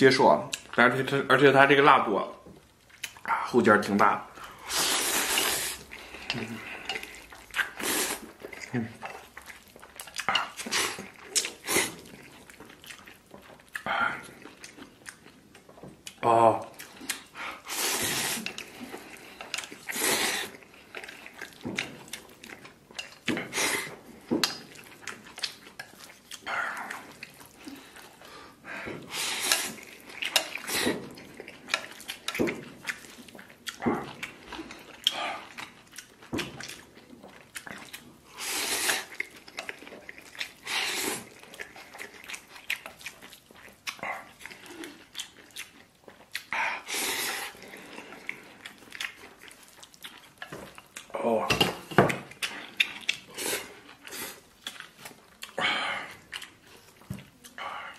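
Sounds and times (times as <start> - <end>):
chewing: 2.3 - 57.9
person slurping noodles: 4.4 - 9.3, 10.2 - 12.4, 17.1 - 21.4, 23.3 - 24.2, 26.4 - 32.1, 38.2 - 39.4, 40.2 - 42.2, 46.4 - 48.6, 52.4 - 54.5.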